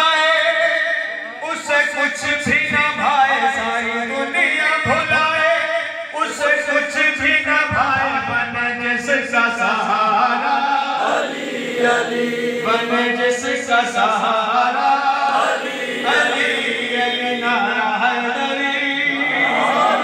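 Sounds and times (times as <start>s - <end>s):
men chanting: 10.1s - 20.0s.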